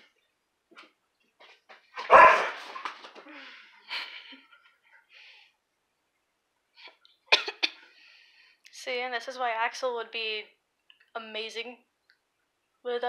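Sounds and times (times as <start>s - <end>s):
dog barking: 2.0s - 2.6s.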